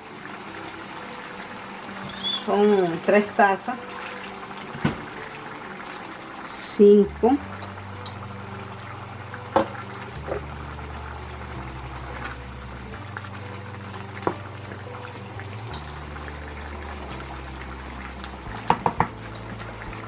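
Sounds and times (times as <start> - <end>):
broth simmering in a pan: 0.0 - 20.0
wooden spoon knocking a pan: 18.7 - 19.2.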